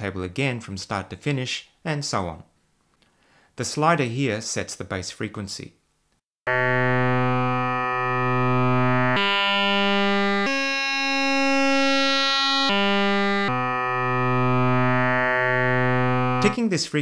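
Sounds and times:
synthesized buzzy tone: 6.5 - 16.6.

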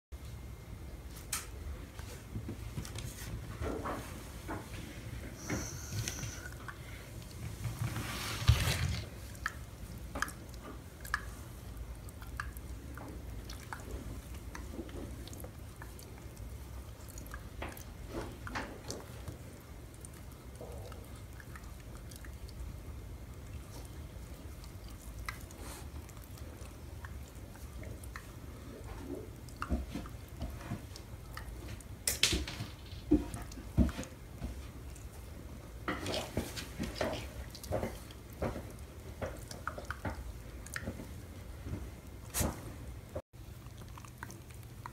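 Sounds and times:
dog sucking and mouthing fingers: 9.1 - 22.7.

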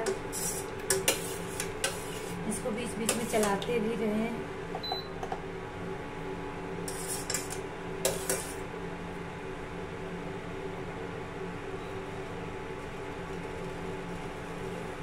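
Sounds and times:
spoon scraping a metal pan: 0.0 - 2.4, 3.0 - 3.6, 6.9 - 8.6
steady hum: 0.0 - 15.0.

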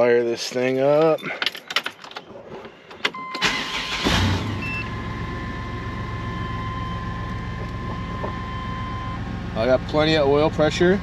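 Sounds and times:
ignition click: 3.0 - 4.0
engine idling: 3.4 - 11.0.

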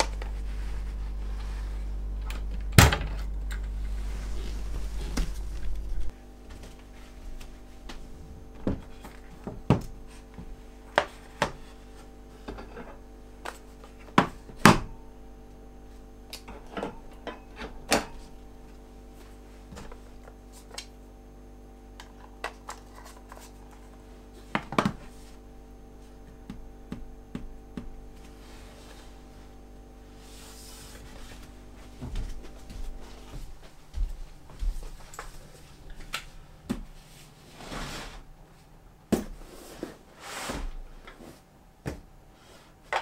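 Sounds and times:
steady low drone: 0.0 - 9.2.

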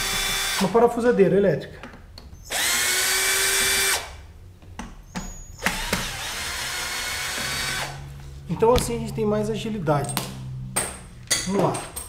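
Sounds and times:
electric drill whining: 0.0 - 0.7, 2.4 - 4.2, 5.2 - 8.1.

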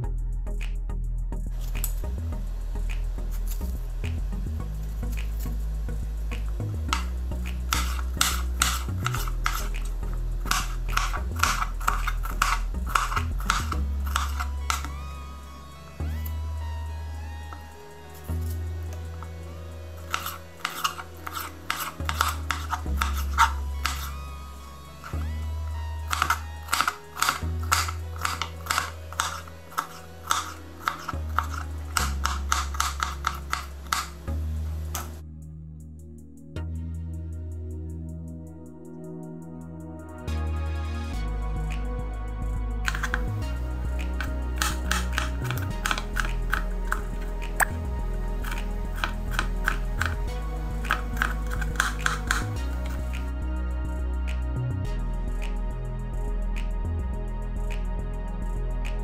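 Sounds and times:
knife chopping on cutting board: 20.1 - 24.1, 26.1 - 34.1, 44.6 - 47.0, 50.9 - 52.5.

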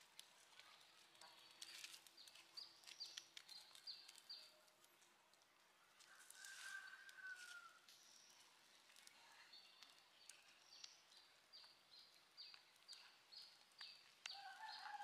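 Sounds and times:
birds chirping: 9.2 - 15.0.

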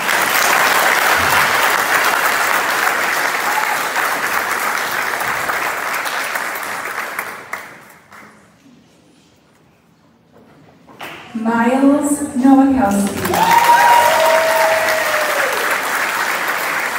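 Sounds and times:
audience applause: 0.0 - 8.2, 13.0 - 16.9.

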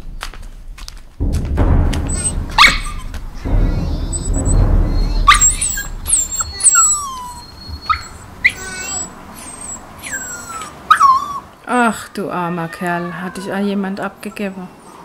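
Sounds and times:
dogs whining and yelping: 5.3 - 11.6, 13.0 - 15.0.

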